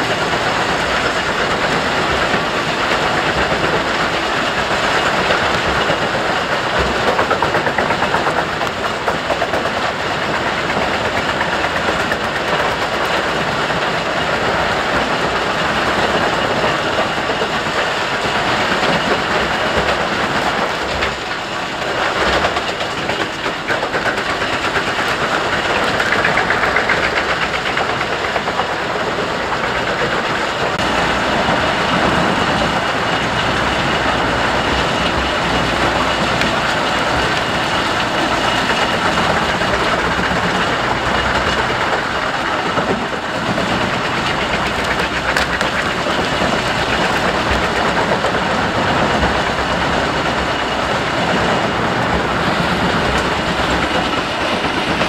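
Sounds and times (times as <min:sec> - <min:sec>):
wood chipper engine running: 0:00.0 - 0:55.0.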